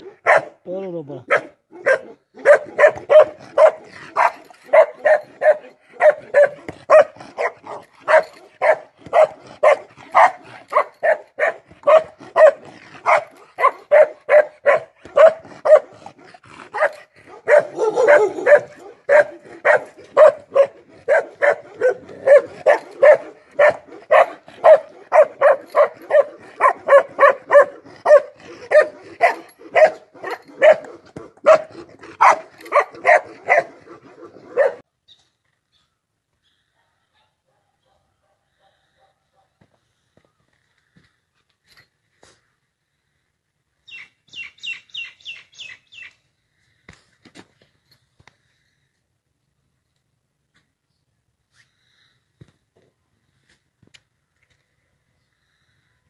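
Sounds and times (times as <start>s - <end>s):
dog barking: 0.0s - 0.6s, 1.3s - 16.0s, 16.7s - 33.8s, 34.4s - 34.8s, 36.8s - 39.6s.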